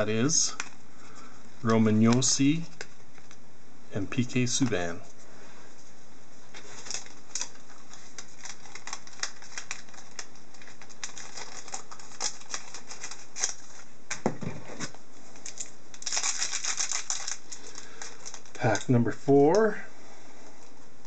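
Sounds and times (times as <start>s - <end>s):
card packaging clicks and crinkles: 6.6s - 19.6s.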